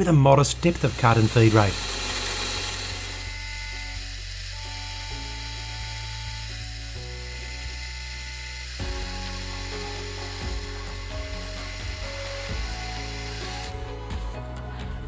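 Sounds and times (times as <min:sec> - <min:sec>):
milling machine whining: 0:00.0 - 0:14.4
background music held chords: 0:08.7 - 0:15.0.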